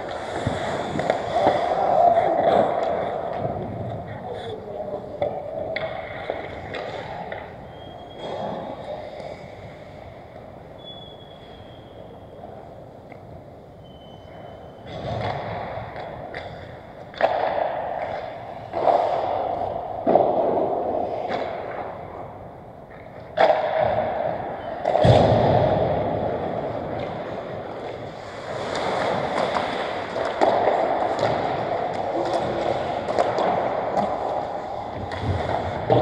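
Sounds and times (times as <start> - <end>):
skates scraping on ice: 0.0 - 12.2, 14.9 - 22.4, 23.0 - 36.0
puck and sticks knocking: 26.8 - 36.0.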